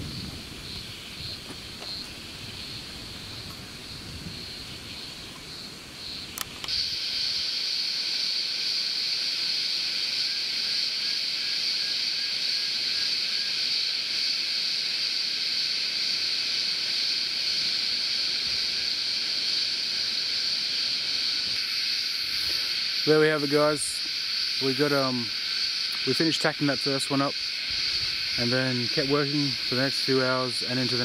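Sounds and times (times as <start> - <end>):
cicadas droning: 0.0 - 31.0
sharp click: 6.3 - 6.8.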